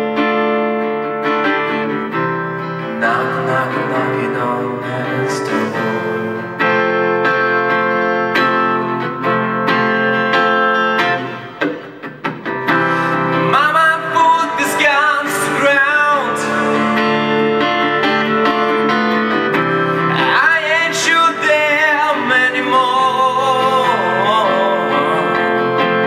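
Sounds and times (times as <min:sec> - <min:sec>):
acoustic guitar strumming: 0:00.0 - 0:26.0
man singing into a microphone: 0:02.8 - 0:06.8, 0:11.1 - 0:11.6, 0:13.0 - 0:17.8, 0:19.9 - 0:26.0.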